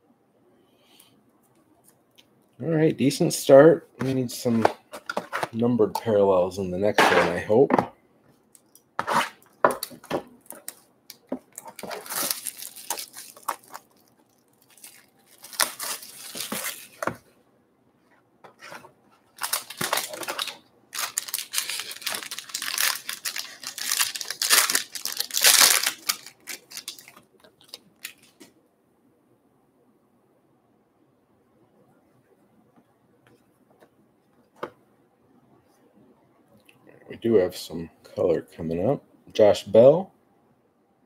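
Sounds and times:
packaging tearing and crinkling: 9.3 - 17.1, 19.3 - 28.4.

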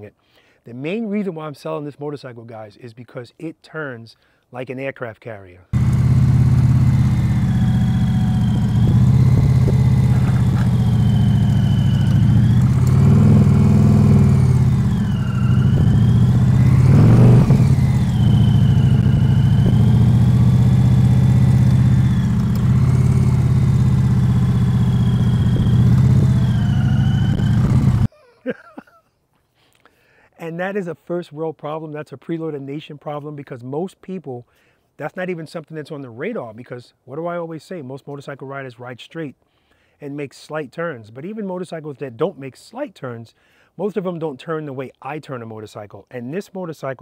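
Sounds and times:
motorcycle engine running: 5.8 - 28.1.

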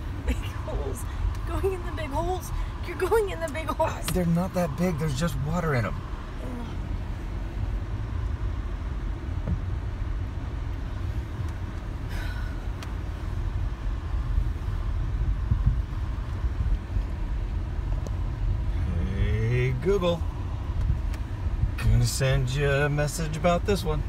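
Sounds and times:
tyre and engine rumble: 0.0 - 24.0
car knocking over bumps: 9.3 - 9.8.

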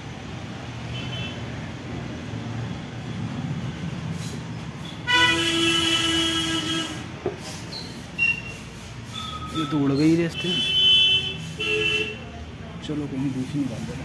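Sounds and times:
horn sounding: 5.0 - 7.2.

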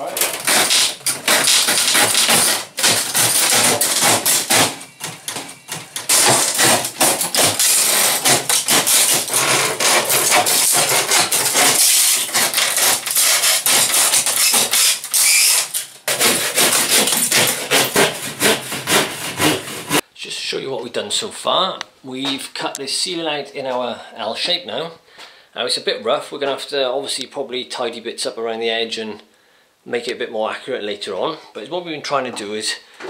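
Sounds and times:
wood knocking and cracking: 0.0 - 19.0
hand saw rasping through wood: 0.0 - 20.0.

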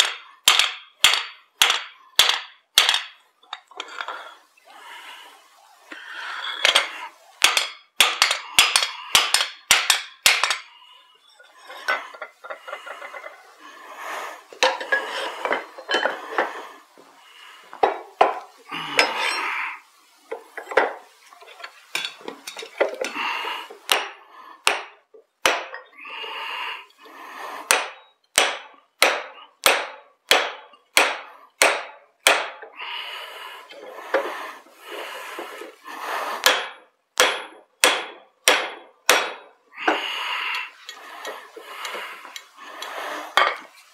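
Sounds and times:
hammer striking steel: 0.0 - 3.2, 6.6 - 10.7, 23.9 - 25.8, 27.7 - 32.6, 36.4 - 39.5.

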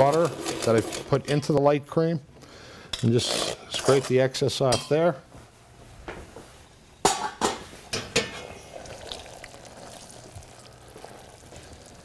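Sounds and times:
metal pots clanking: 7.0 - 8.6.

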